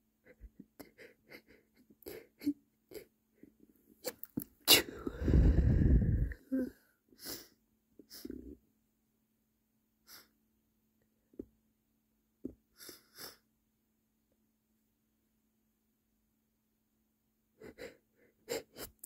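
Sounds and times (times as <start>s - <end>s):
short breaths: 4.8s - 7.5s.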